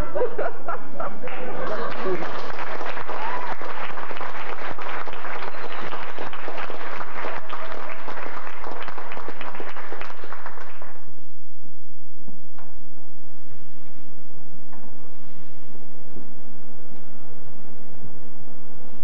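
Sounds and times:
audience applauding: 0:01.2 - 0:11.1.

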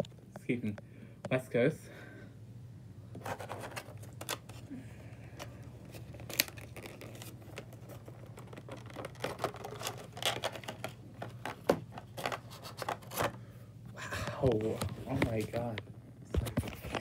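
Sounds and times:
low steady hum: 0:00.0 - 0:17.0
plastic packaging crinkling: 0:05.4 - 0:13.2.

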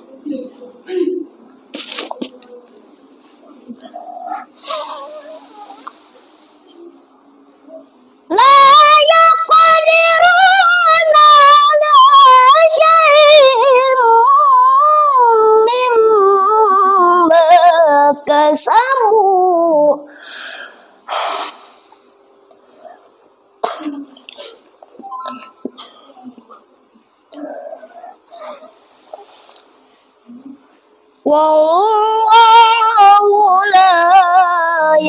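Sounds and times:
boy reciting in melodic chant: 0:03.5 - 0:06.4, 0:07.7 - 0:20.1, 0:31.2 - 0:35.0.

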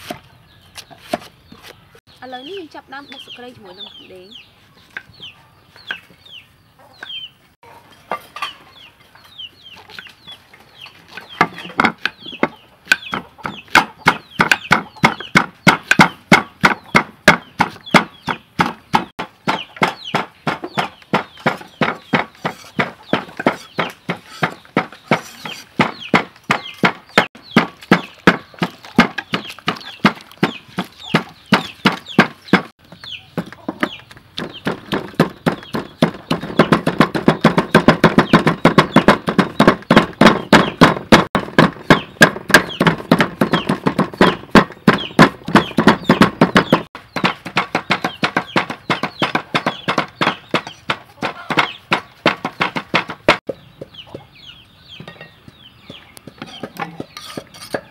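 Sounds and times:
cleaver chopping on wooden block: 0:11.4 - 0:32.7, 0:33.4 - 0:53.6
pestle strokes in a mortar: 0:12.9 - 0:32.7, 0:56.2 - 0:57.9.

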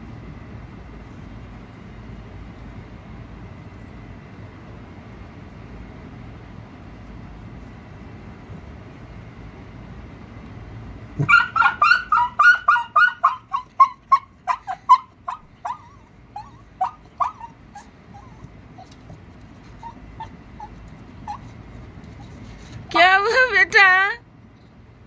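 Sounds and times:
dog whimpering: 0:11.2 - 0:22.8
dog yelping: 0:11.2 - 0:22.8.

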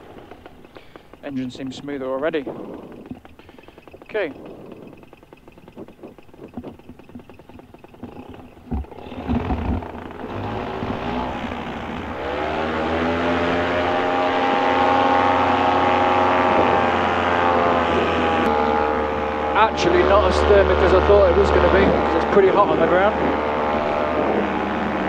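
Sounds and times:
two-stroke engine and propeller: 0:00.0 - 0:25.0
thumps: 0:02.4 - 0:12.1.

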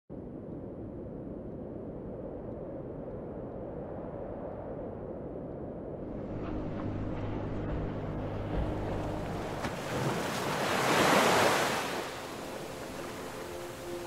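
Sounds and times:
rumble of sea: 0:00.1 - 0:14.0
wave breaking on sand: 0:06.2 - 0:14.0.

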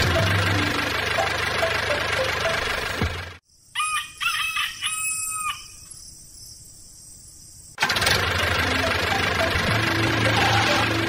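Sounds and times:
rooster crowing: 0:03.7 - 0:05.8
motor running: 0:07.8 - 0:11.0.

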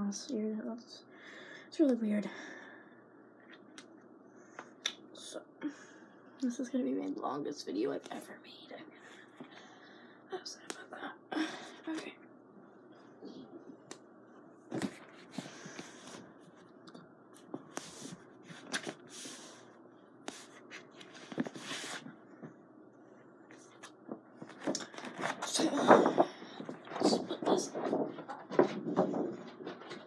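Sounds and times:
paper poster rustling: 0:14.7 - 0:16.7, 0:23.6 - 0:30.0.

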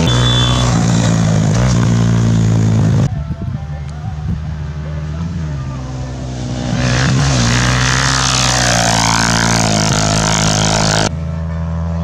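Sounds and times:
motorcycle engine at full throttle: 0:00.0 - 0:12.0.

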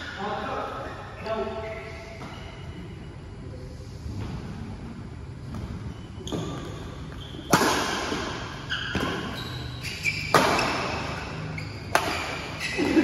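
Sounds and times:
rackets hitting shuttlecock: 0:05.5 - 0:13.0.

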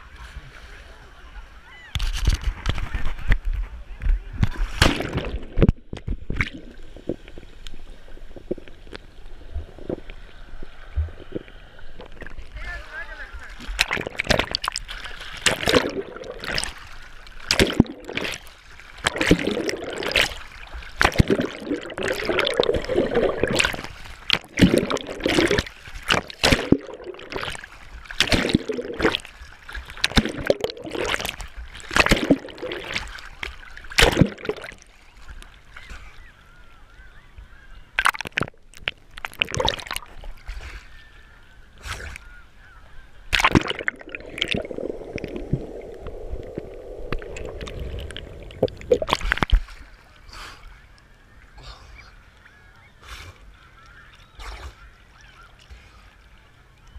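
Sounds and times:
water splashing against camera: 0:01.7 - 0:36.0, 0:37.9 - 0:40.9, 0:43.2 - 0:51.1
muffled underwater gurgling: 0:15.4 - 0:16.8, 0:17.5 - 0:18.4, 0:19.0 - 0:27.6, 0:28.2 - 0:29.3, 0:30.0 - 0:33.2, 0:43.3 - 0:49.5.

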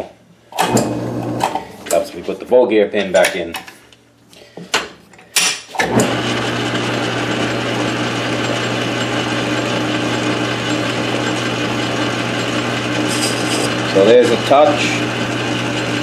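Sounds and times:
metal lathe motor humming: 0:06.0 - 0:16.0.

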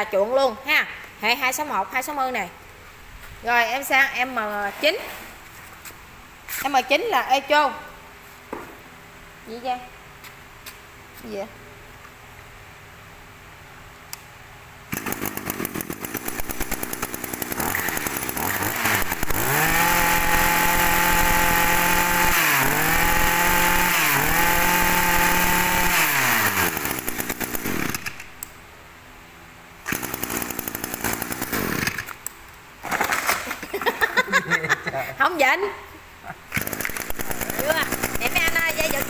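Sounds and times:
brush cutter engine revving: 0:14.9 - 0:28.4, 0:29.8 - 0:32.2, 0:36.5 - 0:39.0.

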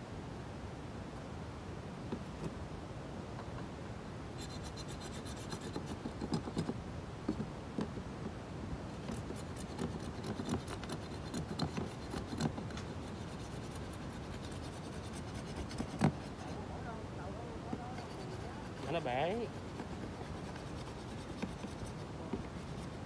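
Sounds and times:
scraper scratching boat hull: 0:04.4 - 0:07.5, 0:08.9 - 0:16.7, 0:17.7 - 0:23.0.

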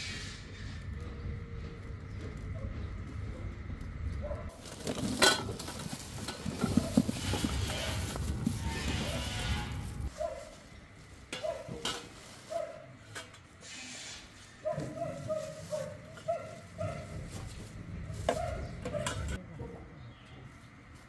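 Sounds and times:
plastic bag rustling: 0:04.5 - 0:12.8, 0:14.6 - 0:18.6.

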